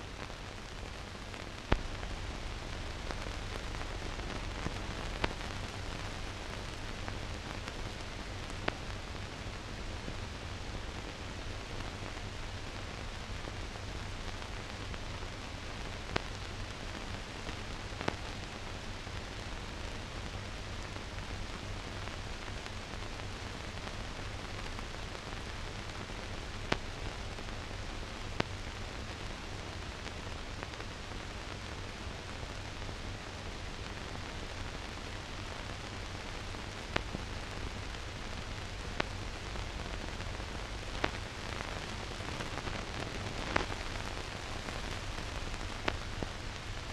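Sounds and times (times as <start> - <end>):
steady hiss: 0.0 - 46.9.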